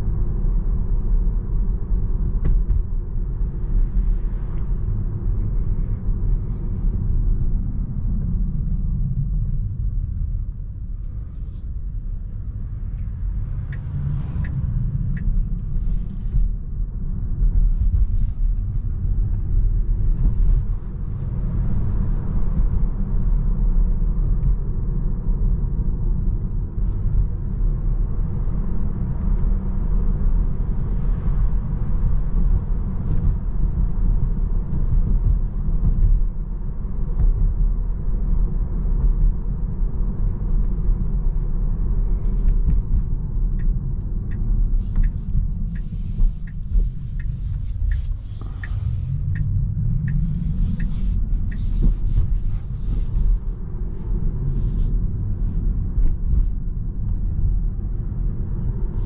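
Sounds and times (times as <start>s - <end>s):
tyre and road rumble: 0.0s - 59.0s.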